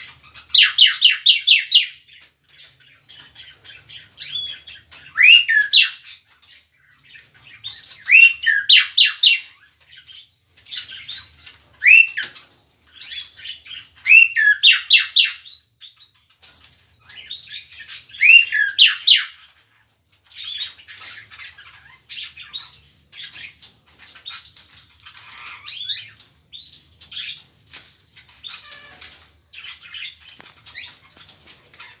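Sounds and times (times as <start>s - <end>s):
mockingbird singing: 0.0s - 2.1s, 3.0s - 6.2s, 7.5s - 9.6s, 10.7s - 19.4s.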